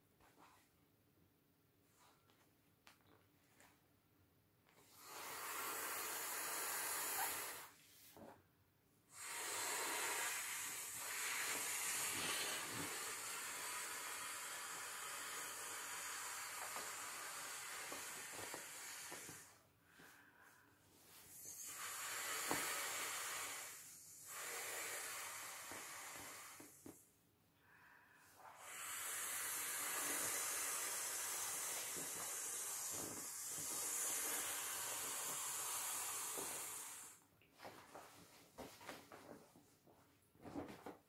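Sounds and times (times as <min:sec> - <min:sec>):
breath blown through valve: 0:04.8 - 0:07.8, 0:09.1 - 0:37.2.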